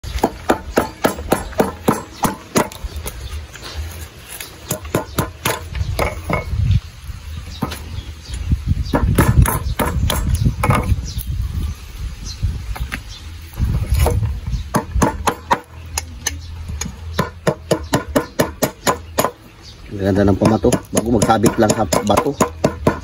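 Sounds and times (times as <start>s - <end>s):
meat cleaver striking wood: 0.1s - 2.8s, 4.6s - 6.5s, 8.9s - 10.9s, 14.1s - 16.1s, 17.2s - 19.4s, 20.4s - 23.0s.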